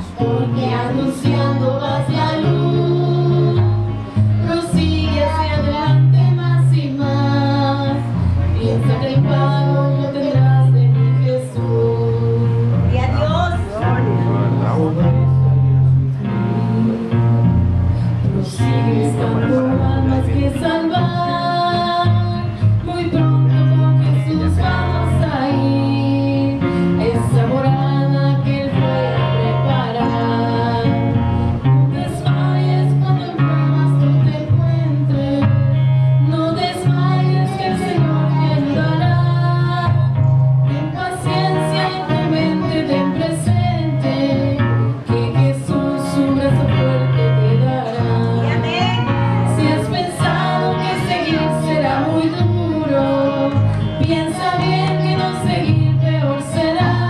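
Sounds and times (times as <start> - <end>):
young woman singing: 0.0 - 13.8, 16.2 - 57.0
man singing: 18.3 - 21.9.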